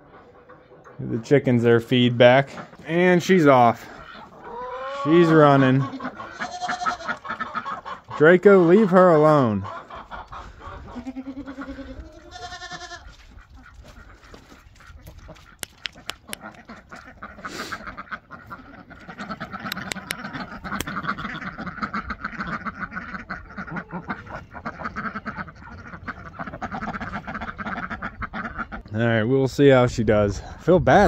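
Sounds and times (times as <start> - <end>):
ducks quacking and chattering: 0.0 - 31.0
sharp ticks: 15.5 - 16.6.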